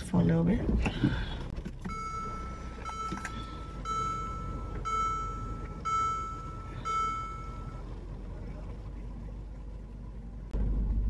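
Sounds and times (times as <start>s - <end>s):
low car hum: 0.0s - 11.0s
dashboard warning chime: 1.8s - 8.0s.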